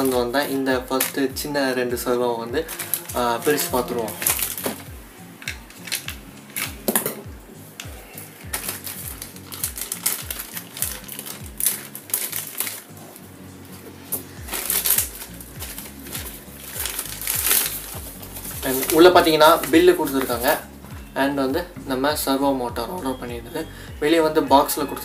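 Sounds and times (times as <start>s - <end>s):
plastic envelope tearing and crinkling: 0.0s - 1.3s, 2.7s - 7.1s, 8.5s - 13.2s, 14.1s - 20.6s
background music with low beat: 0.0s - 25.0s.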